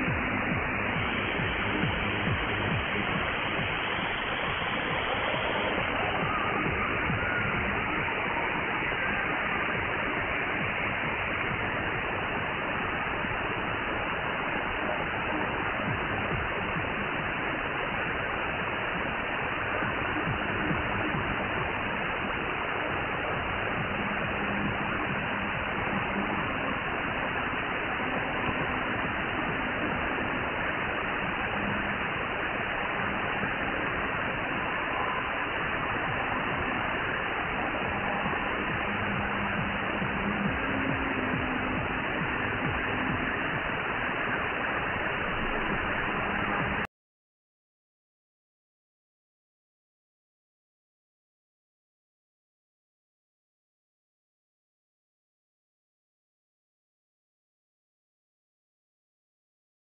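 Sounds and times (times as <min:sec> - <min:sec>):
faint tones under static: 0:00.0 - 0:46.9
radio static hiss: 0:00.0 - 0:46.9.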